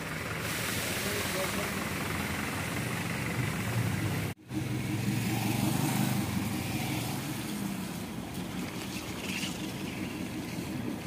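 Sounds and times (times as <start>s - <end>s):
traffic hiss on wet road: 0.0s - 11.0s
motorcycle engine passing: 2.9s - 11.0s.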